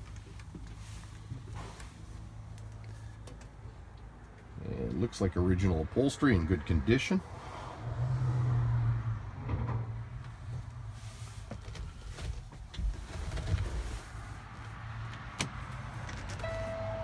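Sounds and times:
steady buzzer tone: 0:16.4 - 0:17.0.

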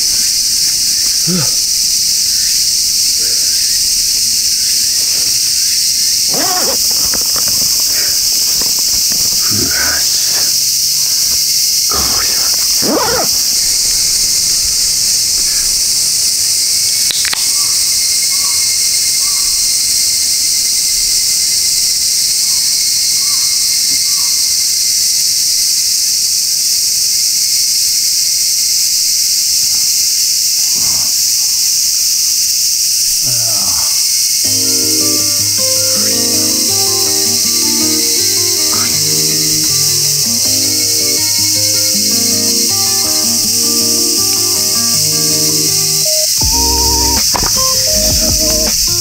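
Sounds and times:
cicadas chorus: 0:00.0 - 0:49.0.

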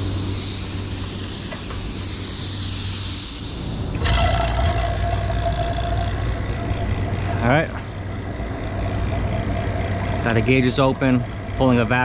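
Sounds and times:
gas hissing out: 0:00.0 - 0:07.5
vacuum pump humming: 0:00.0 - 0:12.0.

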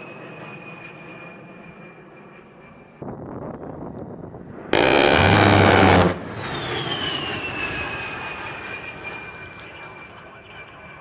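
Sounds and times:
jet engines whining: 0:04.6 - 0:10.5
rotary cannon firing burst: 0:04.8 - 0:06.4.

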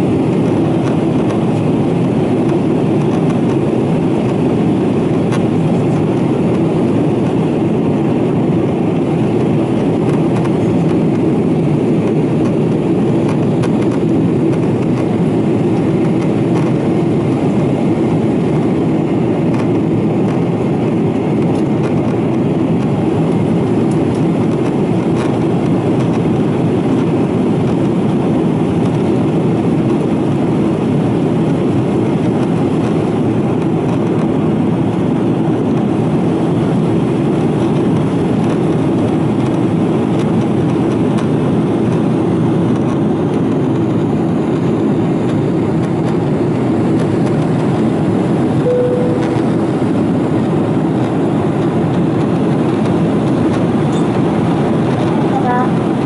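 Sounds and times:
jet engine drone: 0:00.0 - 0:56.0
steady hum: 0:48.2 - 0:51.4
brief single tone: 0:48.6 - 0:49.6.

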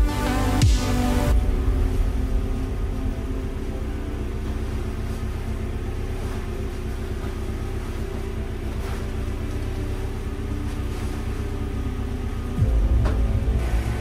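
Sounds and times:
car engine idling: 0:00.0 - 0:14.0
fabric cover rustling: 0:02.7 - 0:12.6.

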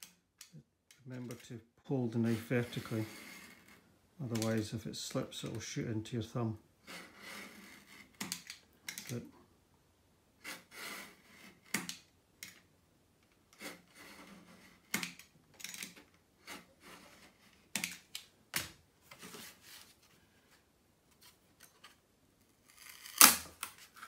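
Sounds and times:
utility knife scraping plywood: 0:02.3 - 0:03.8, 0:06.8 - 0:08.2, 0:10.4 - 0:11.8, 0:13.5 - 0:14.9, 0:16.4 - 0:17.7.

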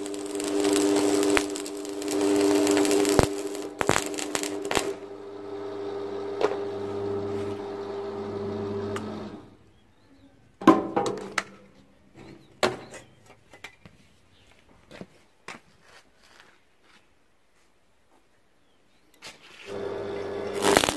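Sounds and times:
welding arc crackle: 0:00.0 - 0:09.4, 0:19.7 - 0:20.9
welder humming: 0:00.0 - 0:09.6, 0:19.7 - 0:20.9.

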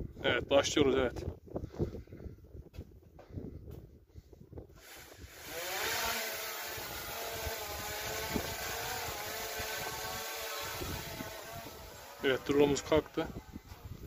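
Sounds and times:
drone propellers buzzing: 0:04.8 - 0:14.0.

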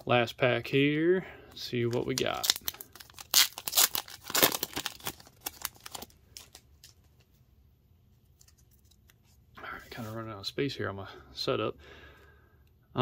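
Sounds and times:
foil wrapper tearing and crinkling: 0:01.9 - 0:07.0.

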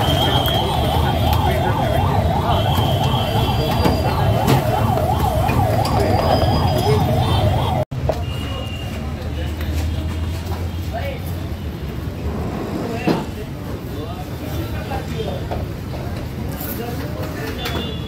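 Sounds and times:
electronic siren warbling: 0:00.0 - 0:07.8.

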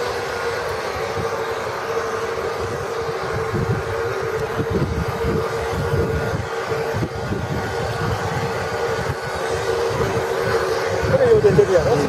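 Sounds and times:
steady mid-pitched hum: 0:00.0 - 0:12.0
wind buffeting microphone: 0:00.0 - 0:12.0.

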